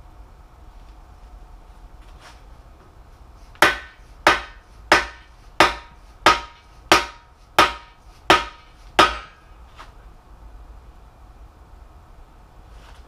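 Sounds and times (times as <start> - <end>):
hammer striking metal bar: 3.6 - 9.5.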